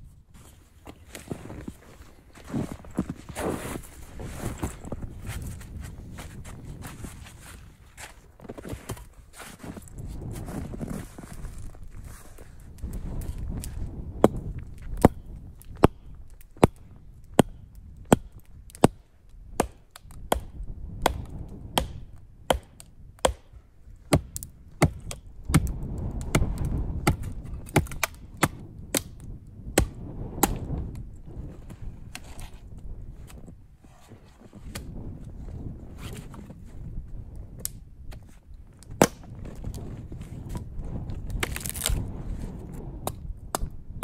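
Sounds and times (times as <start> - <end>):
axe chopping wood: 17.4 - 19.0, 19.6 - 23.5, 24.1 - 29.2, 29.8 - 30.7, 39.0 - 39.3.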